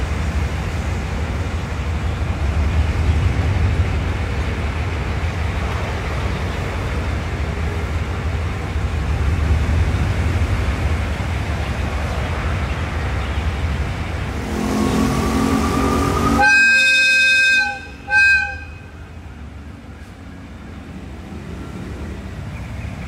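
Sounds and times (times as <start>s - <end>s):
locomotive engine running: 0.0s - 23.0s
locomotive horn blasts: 14.3s - 19.2s.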